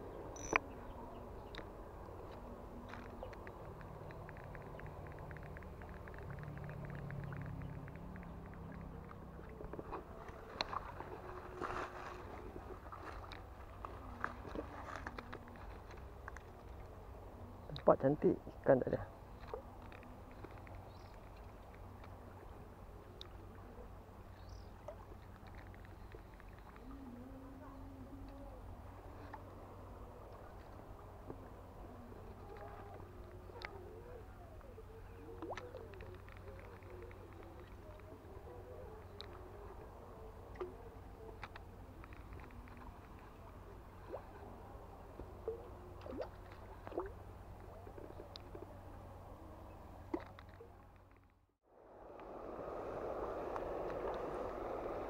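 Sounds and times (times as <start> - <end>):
faint low rumble: 0.0 - 55.0
fishing reel ticks: 0.4 - 0.6
short high chirp: 0.4 - 0.6
light clicks: 2.3 - 9.7
wind rumble on microphone: 51.7 - 55.0.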